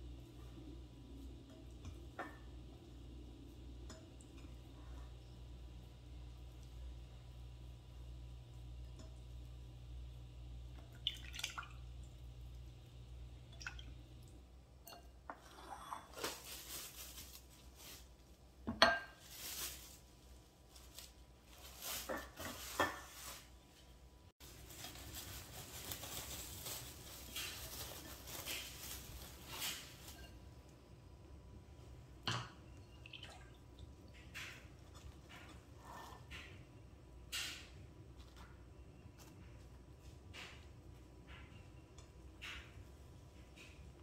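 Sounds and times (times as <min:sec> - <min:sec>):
cling wrap crinkling: 0:16.1 - 0:18.4, 0:19.2 - 0:23.8, 0:24.4 - 0:30.3.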